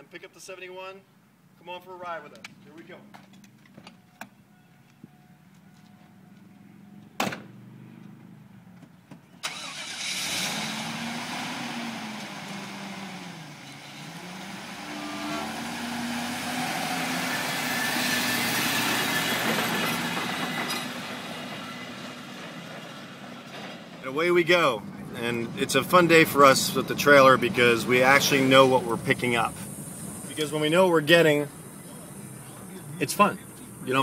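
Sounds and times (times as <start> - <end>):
truck engine starting and driving: 6.2 - 34.0
door slamming: 7.2 - 7.5.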